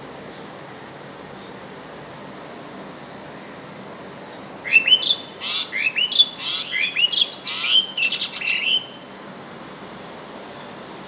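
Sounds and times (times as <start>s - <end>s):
starling whistled calls: 4.7s - 9.0s.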